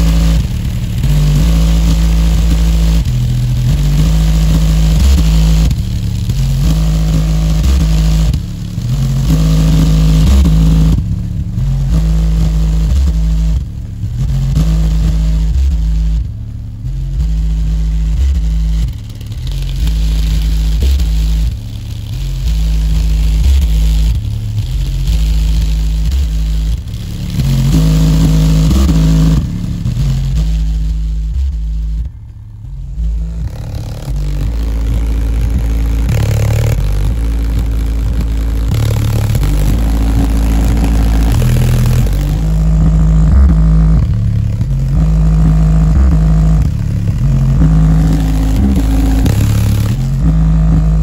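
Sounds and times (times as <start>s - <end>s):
cardboard box vibrating: 0.0s - 51.0s
deep bass notes from woofer: 0.0s - 51.0s
plastic sheet buzzing: 18.2s - 51.0s.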